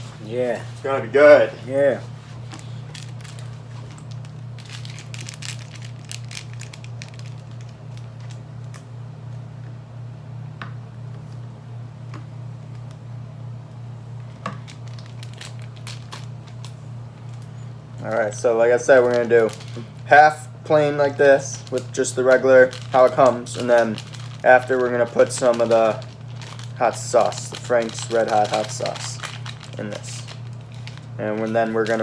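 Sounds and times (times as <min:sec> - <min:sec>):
packets crinkling and tearing: 0:02.4 - 0:08.8, 0:14.4 - 0:32.0.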